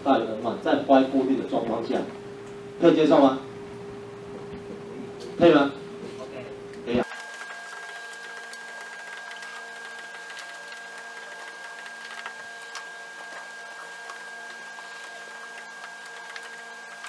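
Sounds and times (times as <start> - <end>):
steady hum and hiss: 0.0 - 17.0.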